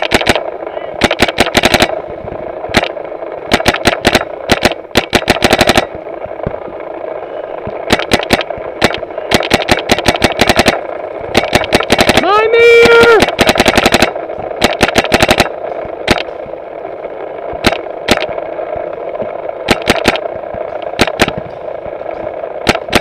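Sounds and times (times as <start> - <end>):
paintball marker firing rapid shots: 0.0 - 2.0, 2.7 - 6.0, 7.8 - 16.3, 17.6 - 18.4, 19.6 - 21.4, 22.6 - 23.0.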